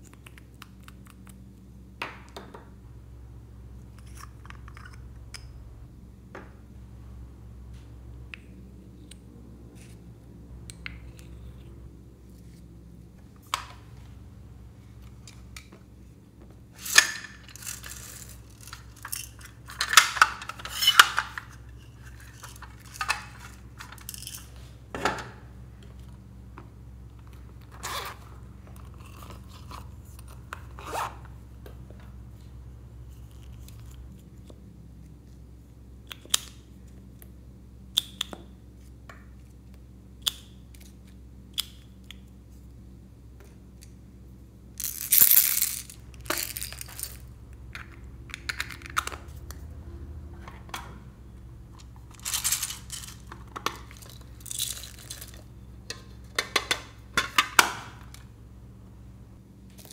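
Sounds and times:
plastic caps clicking: 44.8 - 49.6.

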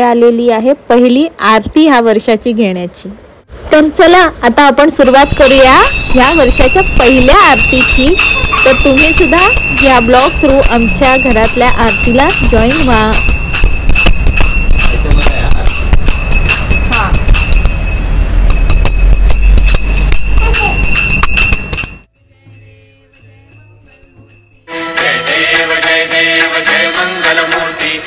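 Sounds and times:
bell ringing rapidly: 5.0 - 28.0.

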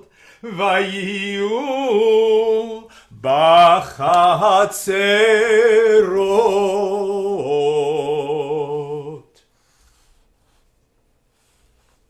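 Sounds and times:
man chanting: 0.0 - 9.3.

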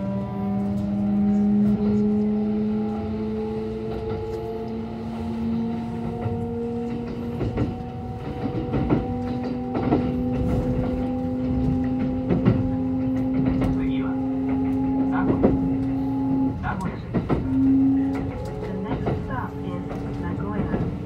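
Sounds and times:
electric train motor whine: 0.0 - 20.2
wheels clacking over rail joints: 6.0 - 21.0.

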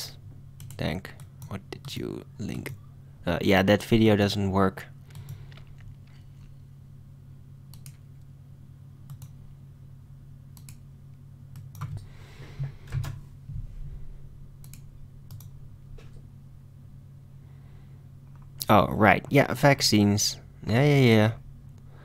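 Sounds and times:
steady low hum: 0.0 - 22.0
keyboard keys clicking: 11.6 - 12.1.

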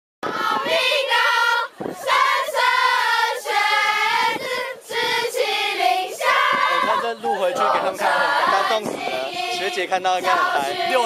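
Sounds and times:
girls singing in chorus: 0.2 - 11.0.

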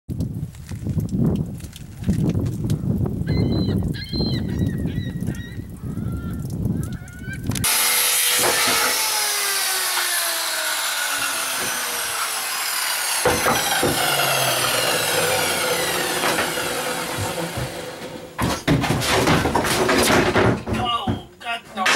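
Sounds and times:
circular saw cutting plywood: 7.6 - 18.5
sharp knocks: 7.7 - 9.2, 13.1 - 21.3.

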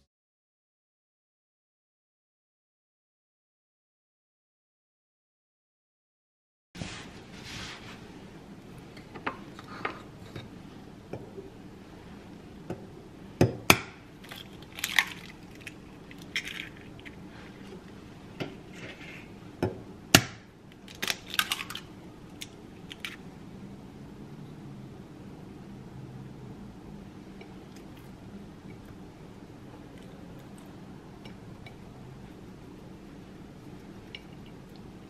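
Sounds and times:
eggshell clicks and rustling: 14.2 - 17.2.

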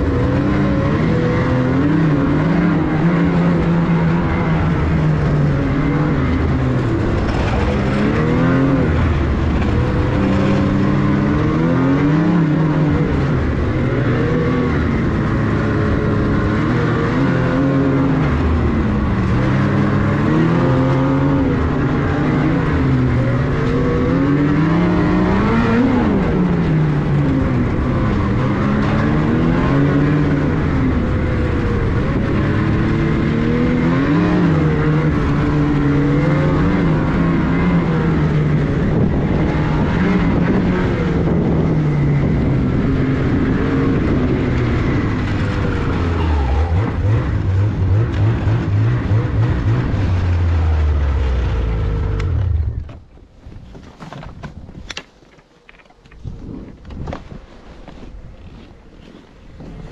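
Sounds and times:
snowmobile engine revving: 0.0 - 52.8.

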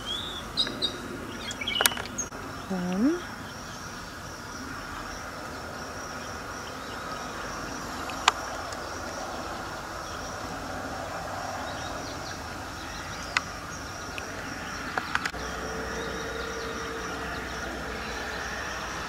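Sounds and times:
low rumble: 8.5 - 19.0
high-pitched buzz: 15.4 - 19.0.

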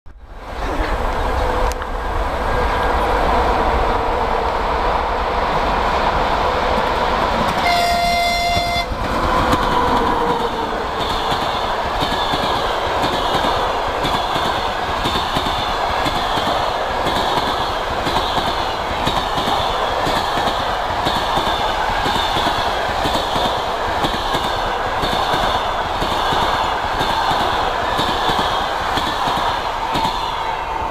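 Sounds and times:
train coaches rushing by: 0.2 - 30.9
locomotive horn: 7.6 - 9.1.

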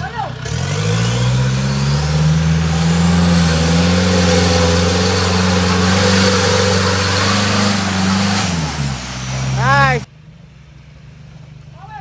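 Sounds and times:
engine at steady raised revs: 0.0 - 11.6
winch running: 1.2 - 10.1.

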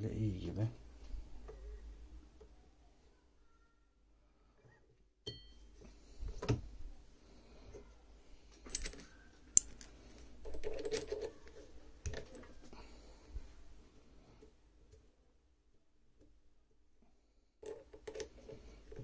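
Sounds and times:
metal parts clinking: 8.6 - 12.6.

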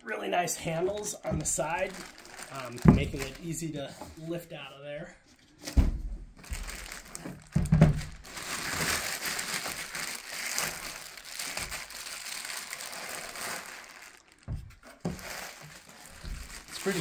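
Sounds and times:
plastic bag crinkling: 0.8 - 3.7, 6.4 - 17.0
heavy thumps: 2.7 - 3.4.

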